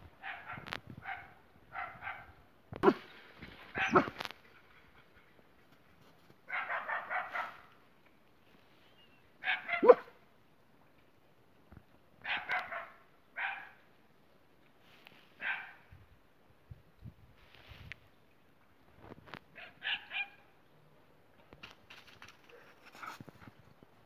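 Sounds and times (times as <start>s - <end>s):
dog barking: 0.2s - 3.0s, 3.8s - 4.2s, 6.5s - 7.7s, 9.4s - 10.2s, 12.2s - 13.8s, 15.4s - 15.8s, 19.6s - 20.4s.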